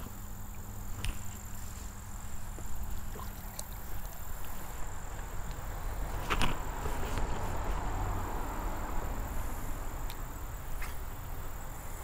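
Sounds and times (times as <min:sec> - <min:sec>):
low rumbling outdoor noise: 0:00.0 - 0:12.0.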